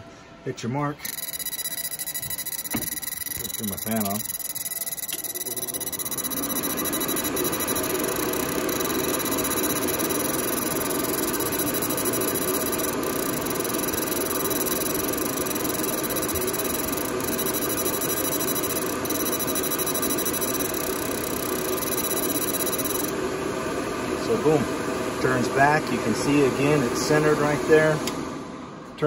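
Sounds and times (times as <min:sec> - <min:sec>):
faint high steady tones: 0:01.0 - 0:23.2
fan running: 0:01.0 - 0:29.0.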